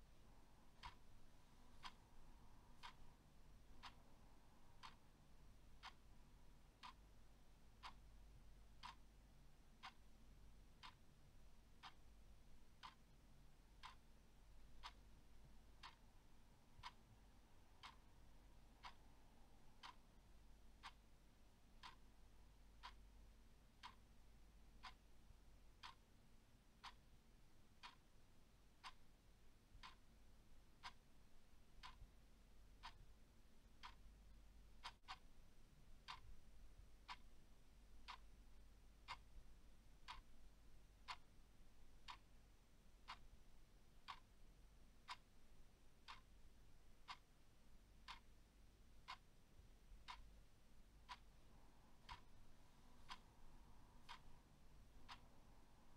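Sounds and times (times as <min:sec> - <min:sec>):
clock ticking: 0:00.0 - 0:55.9
faint low hum: 0:00.0 - 0:55.9.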